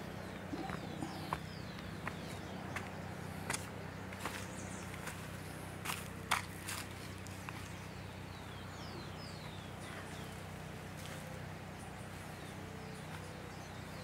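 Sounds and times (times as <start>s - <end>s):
steady low hum: 0.0s - 14.0s
bird high descending calls: 0.2s - 2.4s
footsteps crunching on dry leaves: 0.5s - 8.1s, 9.4s - 13.8s.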